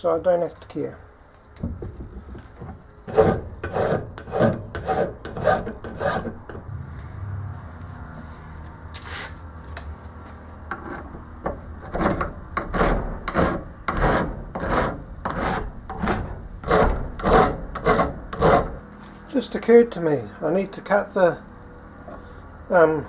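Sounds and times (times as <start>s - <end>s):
hand file rasping on metal: 3.1s - 6.6s, 11.8s - 18.8s.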